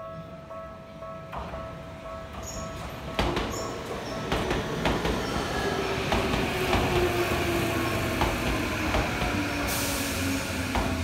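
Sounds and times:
train low hum: 0.0 - 11.0
hiss: 9.6 - 10.5
train wheels clacking over rail joints: 10.7 - 11.0.

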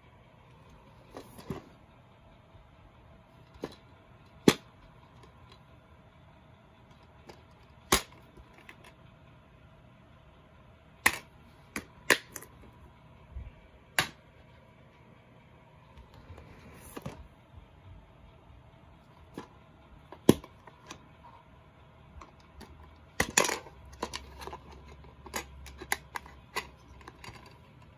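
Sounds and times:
plastic cases clicking and clacking: 1.0 - 1.7, 3.4 - 5.6, 20.1 - 21.0, 22.2 - 27.9.

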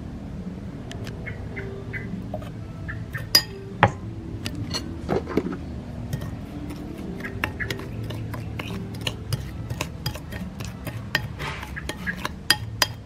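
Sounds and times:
spoon clinking against ceramic bowl: 3.1 - 4.9, 6.1 - 13.0.

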